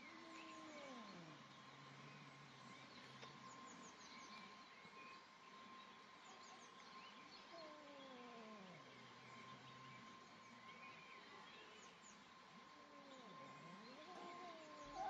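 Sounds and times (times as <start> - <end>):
birds chirping faintly: 0.0 - 15.0
cat yowling: 0.1 - 1.4, 7.5 - 8.9, 12.7 - 15.0.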